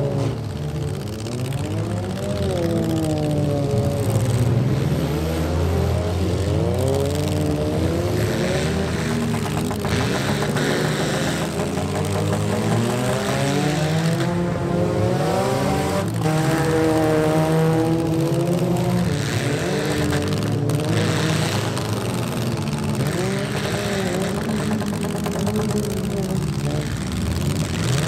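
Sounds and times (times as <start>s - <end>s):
car engines revving: 0.0s - 28.0s.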